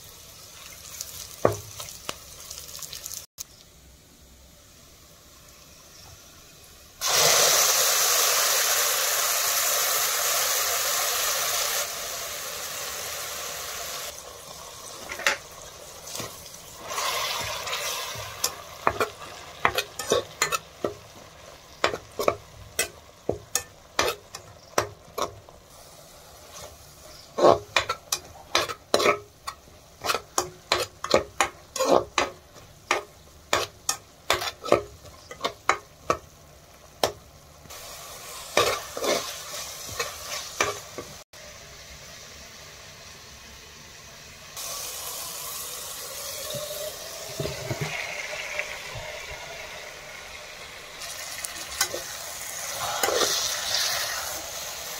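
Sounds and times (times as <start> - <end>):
loud sizzle in hot oil: 0.0 - 3.7, 4.7 - 54.9
metal spoon scraping pan: 16.1 - 21.0, 21.8 - 24.4, 26.5 - 35.8, 38.4 - 40.8, 51.7 - 54.4.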